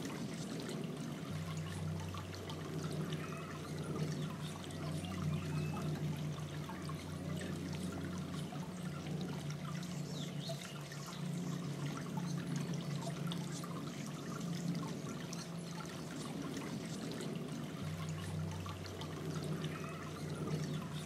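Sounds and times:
fountain bubbling and trickling: 0:00.0 - 0:21.0
low steady hum: 0:00.0 - 0:21.0.

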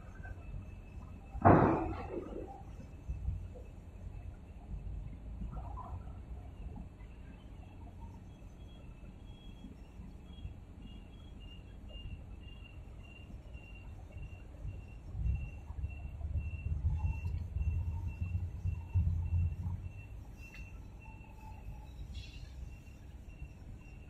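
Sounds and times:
distant harbour noise: 0:00.0 - 0:24.0
faint high-pitched chirp: 0:02.0 - 0:24.0
wind rumble: 0:14.4 - 0:22.1.

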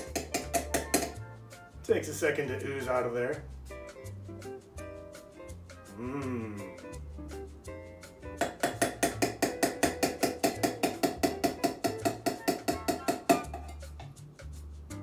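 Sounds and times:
metal tapping on glass: 0:00.0 - 0:01.2, 0:08.4 - 0:14.2
background music with bass: 0:00.0 - 0:15.0.

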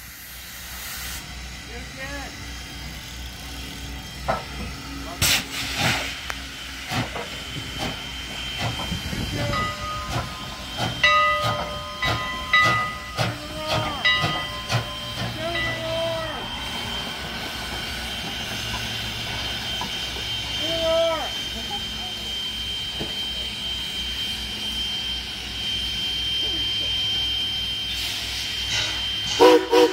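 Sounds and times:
steam hissing: 0:00.0 - 0:29.9
steam locomotive chuffing: 0:00.0 - 0:29.9
steam whistle blowing: 0:08.6 - 0:29.9.

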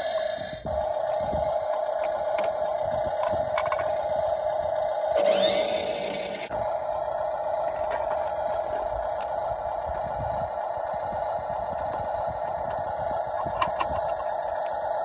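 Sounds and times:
toy truck electric hum: 0:00.0 - 0:15.0
small plastic clicks: 0:01.7 - 0:04.0, 0:13.5 - 0:14.8.

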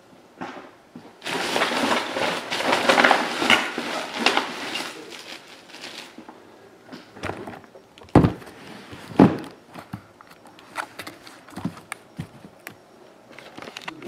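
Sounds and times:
boxes thudding on table: 0:07.1 - 0:10.0
boxes knocking and tapping: 0:07.1 - 0:10.1, 0:11.0 - 0:12.8.

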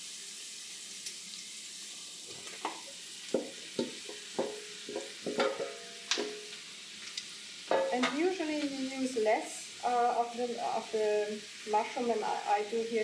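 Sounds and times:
onions sizzling in a frying pan: 0:00.0 - 0:13.0
metal bowl and spoon clinking: 0:04.0 - 0:06.5, 0:07.7 - 0:08.2.

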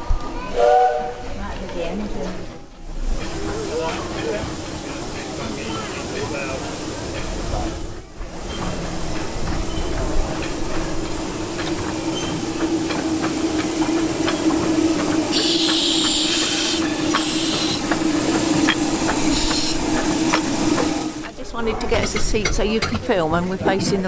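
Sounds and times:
steady locomotive hum: 0:00.0 - 0:24.0
wheels clicking over rails: 0:01.3 - 0:24.0
steam hissing bursts: 0:02.8 - 0:21.4.

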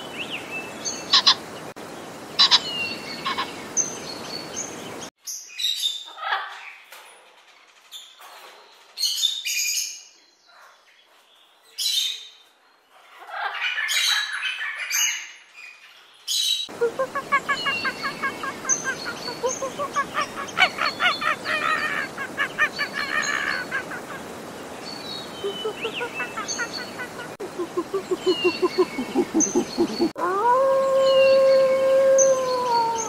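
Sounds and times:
steady background hiss: 0:00.0 - 0:05.1, 0:16.7 - 0:33.0
macaws squawking harshly: 0:02.4 - 0:02.6, 0:16.8 - 0:24.4, 0:25.4 - 0:30.2
chattering bird calls: 0:16.6 - 0:30.2.

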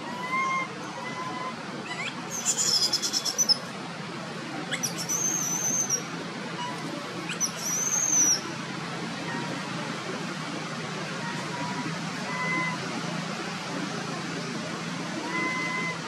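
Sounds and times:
baby monkey squealing: 0:01.9 - 0:03.6, 0:04.7 - 0:06.0, 0:07.3 - 0:08.4.

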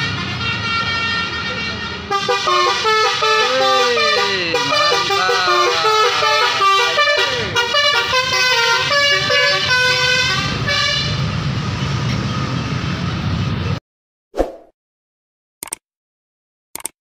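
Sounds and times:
multi-tone bus horn melody: 0:00.0 - 0:11.4
bus engine and tyres passing: 0:00.0 - 0:13.8.

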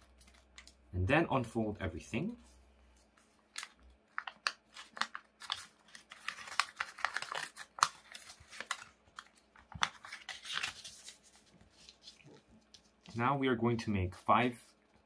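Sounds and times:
paper crackling and crinkling: 0:00.0 - 0:00.8, 0:02.9 - 0:13.3.

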